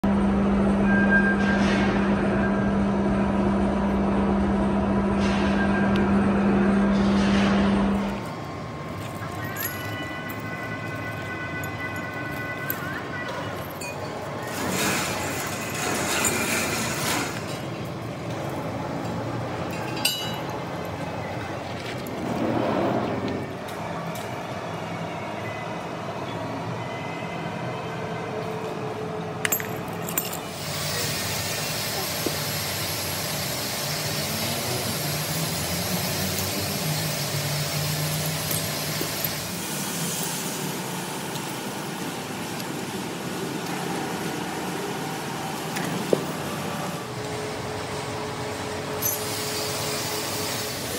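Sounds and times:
machinery hum: 0.0 - 50.9
lifting chain clinking: 9.0 - 17.3, 19.7 - 21.0, 29.4 - 30.6, 37.6 - 39.4, 49.0 - 49.4.

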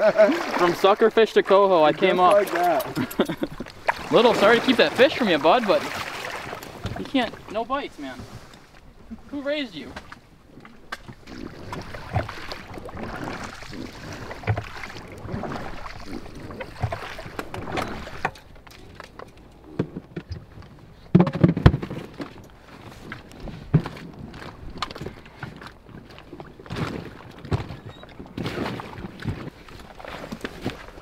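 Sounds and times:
fishing gear knocking and thumping: 2.1 - 5.2, 6.4 - 7.5, 15.9 - 22.5.

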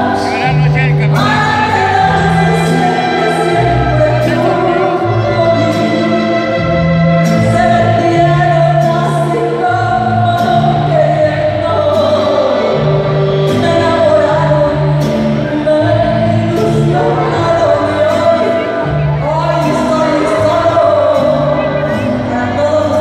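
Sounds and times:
band playing with bass line: 0.0 - 23.0
woman singing into a microphone: 0.0 - 23.0.

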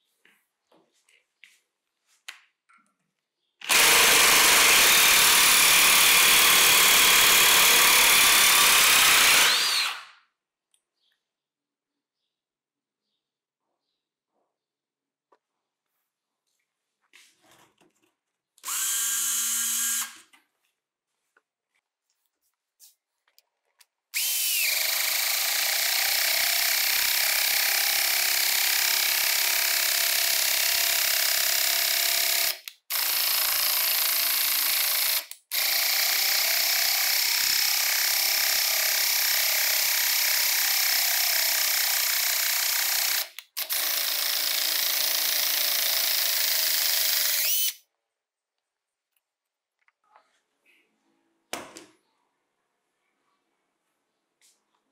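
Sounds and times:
impact driver driving screws into wood: 3.6 - 10.2.

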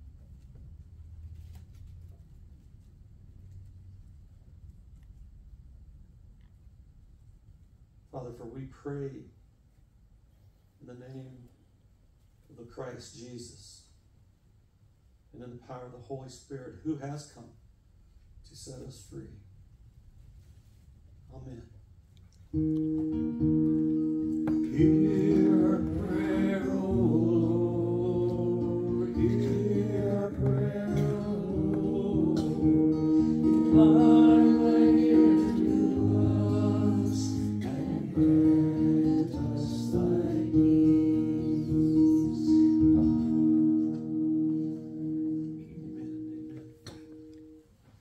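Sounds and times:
held accompanying chords: 22.5 - 48.0
person singing wavering melody: 24.7 - 43.8.

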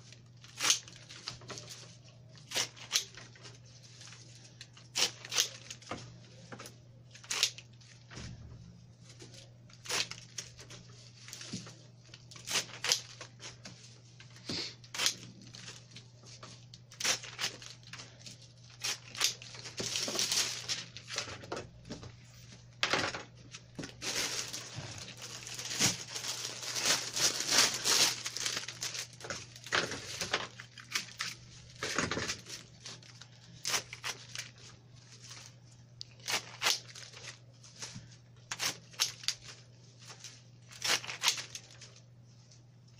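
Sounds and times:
rustling foliage: 24.0 - 29.2.

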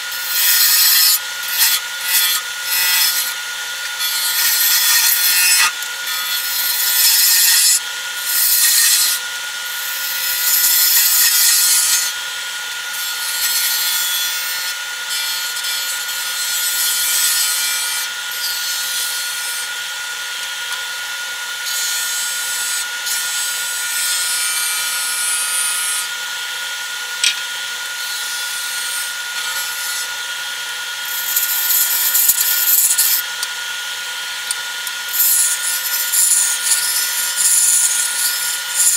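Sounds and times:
wood lathe whining: 0.0 - 38.9
turning tool hissing shaves: 31.0 - 33.2.

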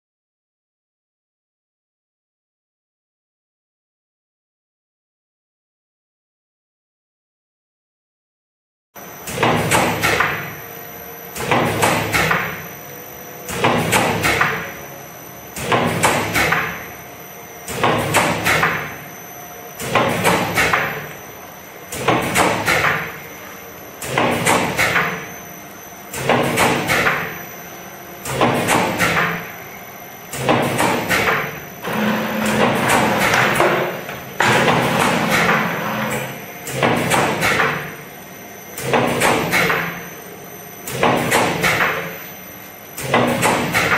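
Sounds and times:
machine clattering knocks and clanks: 9.2 - 10.6, 11.3 - 12.6, 13.4 - 14.8, 15.5 - 16.9, 17.6 - 19.0, 19.8 - 21.1, 21.9 - 23.2, 24.0 - 25.3, 26.1 - 27.4, 28.2 - 29.5, 30.3 - 38.0, 38.8 - 40.1, 40.8 - 42.2, 43.0 - 43.9.

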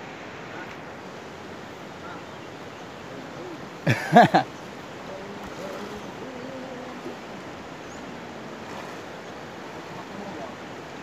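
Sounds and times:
river water rushing: 0.0 - 11.0
faint distant voices: 5.0 - 11.0.

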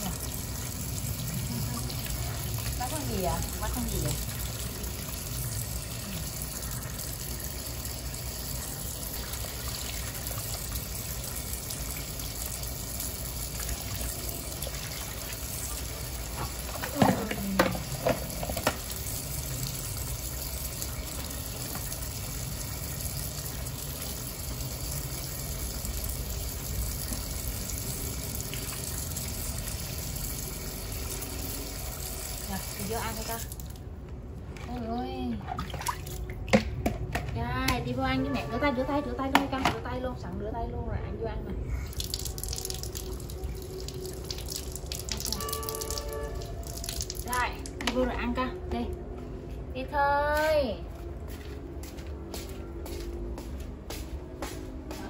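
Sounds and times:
tap water running and splashing: 0.0 - 34.8, 41.9 - 48.9.

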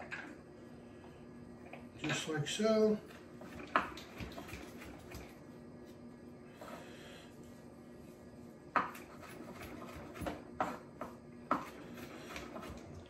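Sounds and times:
faint steady hum: 0.0 - 13.0
knife chopping on cutting board: 8.7 - 12.8.

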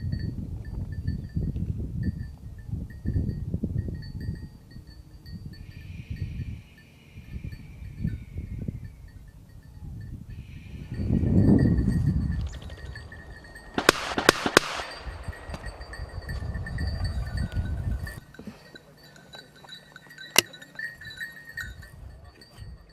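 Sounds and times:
small bell tinkling: 0.0 - 13.8, 14.8 - 22.9
quick sharp cracks: 13.8 - 15.0
shotgun shot: 13.8 - 15.0.

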